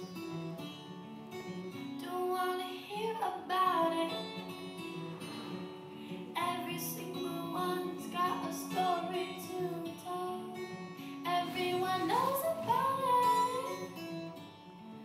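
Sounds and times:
plucked acoustic guitar music: 0:00.0 - 0:15.0
person singing: 0:02.0 - 0:04.8, 0:06.1 - 0:10.6, 0:11.3 - 0:14.1.

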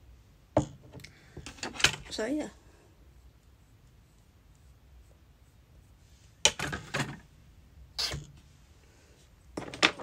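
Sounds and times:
hard objects clattering on table: 0:09.6 - 0:10.0.

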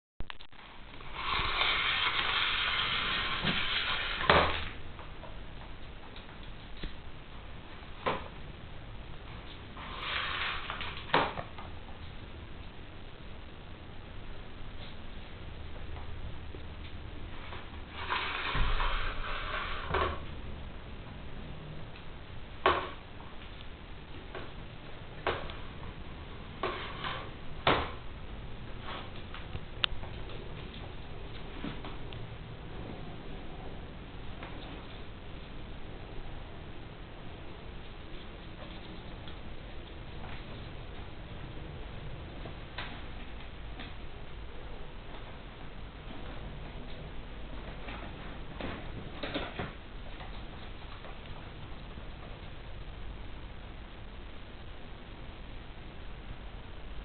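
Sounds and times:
plastic toy scraping on wooden floor: 0:01.0 - 0:04.8, 0:09.8 - 0:11.3, 0:17.5 - 0:20.2, 0:26.6 - 0:27.3.

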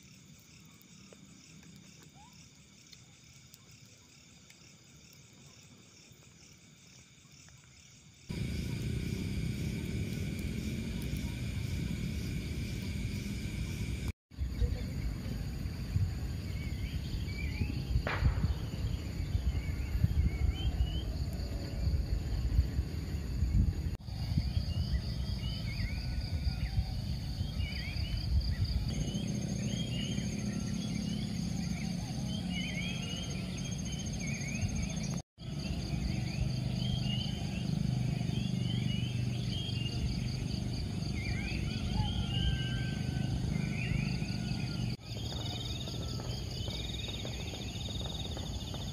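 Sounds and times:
pulsing insect trill: 0:00.0 - 0:48.9
small birds chirping: 0:07.3 - 0:15.4, 0:27.3 - 0:48.9
low rumble: 0:08.3 - 0:14.2.

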